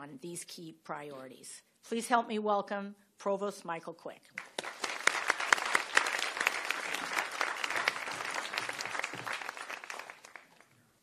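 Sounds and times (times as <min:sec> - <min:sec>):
audience applauding: 0:04.4 - 0:10.8.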